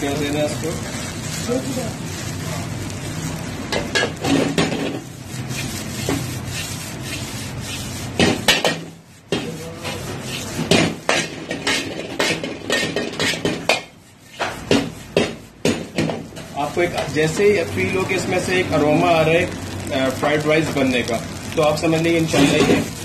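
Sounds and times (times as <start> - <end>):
steady sizzle: 0.0 - 23.0
metal ladle scraping wok: 3.3 - 15.5.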